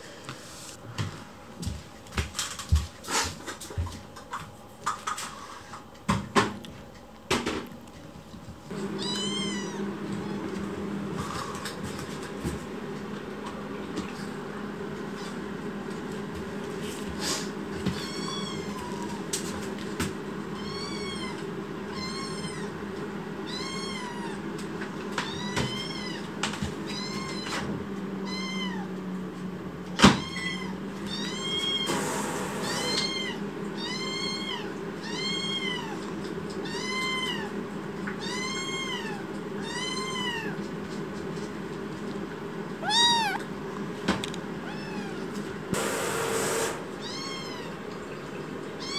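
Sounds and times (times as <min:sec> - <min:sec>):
kitten meowing: 0:09.0 - 0:10.5, 0:18.0 - 0:19.2, 0:20.6 - 0:22.7, 0:23.5 - 0:24.4, 0:25.2 - 0:26.2, 0:26.9 - 0:27.6, 0:28.2 - 0:28.9, 0:30.1 - 0:31.9, 0:32.6 - 0:36.0, 0:36.6 - 0:37.5, 0:38.2 - 0:40.6, 0:42.8 - 0:43.4, 0:44.6 - 0:45.3, 0:47.0 - 0:47.8.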